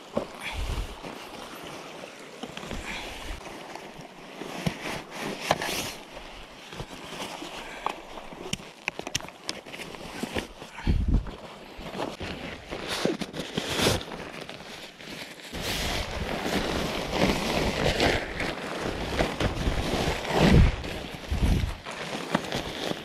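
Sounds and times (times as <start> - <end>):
fabric rustling and flapping: 0.0 - 23.0
wind buffeting microphone: 20.4 - 21.8.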